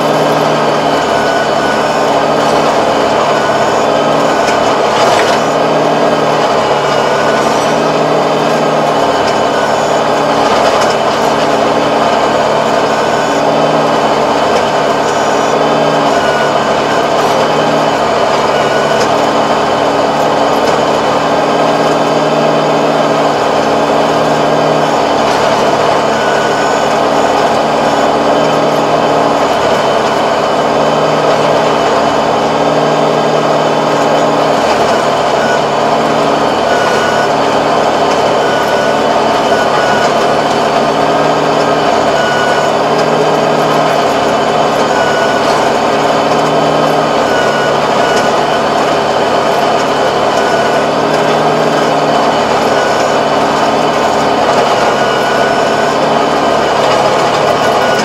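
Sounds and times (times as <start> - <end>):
rotary tiller churning soil: 0.0 - 58.0
tractor diesel engine under load: 0.0 - 58.0.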